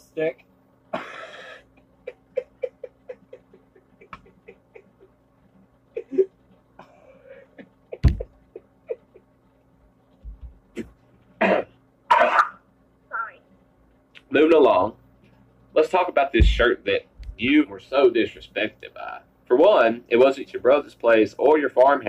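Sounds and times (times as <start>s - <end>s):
man laughing: 1.0s - 5.2s, 5.9s - 9.3s
loud thump: 16.4s - 17.4s.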